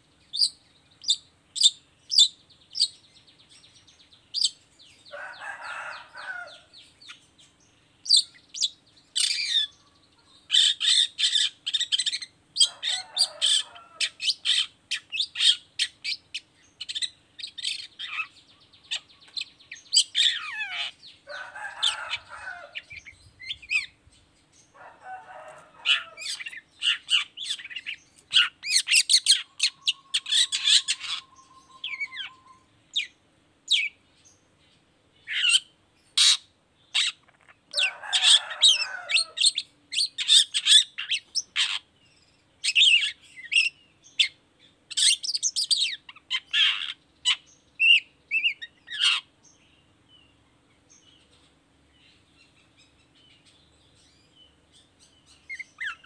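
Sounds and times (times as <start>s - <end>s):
bird song chatter: 0.0s - 56.0s.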